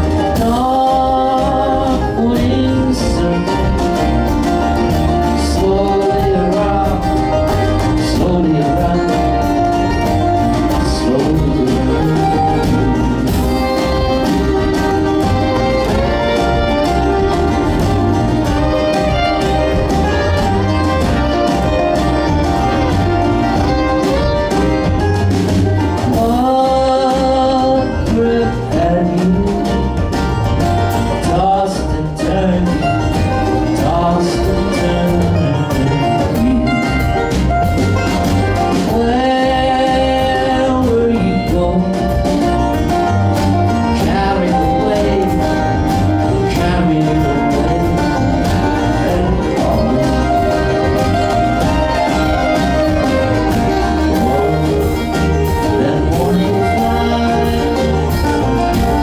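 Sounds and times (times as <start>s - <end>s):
banjo: 0.0s - 59.0s
bluegrass string band playing: 0.0s - 59.0s
fiddle: 0.0s - 59.0s
mandolin: 0.0s - 59.0s
strummed acoustic guitar: 0.0s - 59.0s
upright bass: 0.0s - 59.0s.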